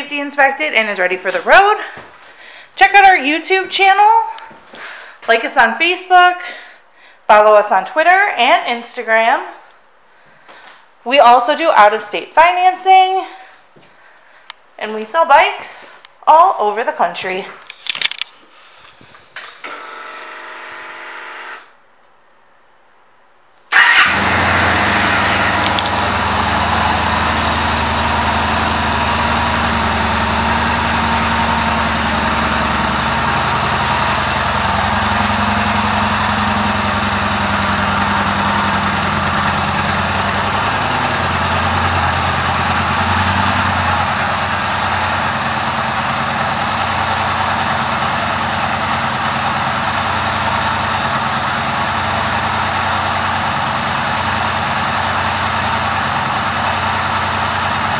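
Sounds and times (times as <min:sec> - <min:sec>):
motorcycle engine idling: 0:23.7 - 0:57.9.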